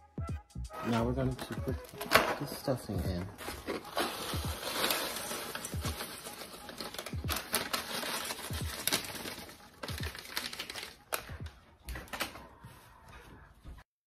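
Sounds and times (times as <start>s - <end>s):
paper bag rustling: 0.8s - 11.3s.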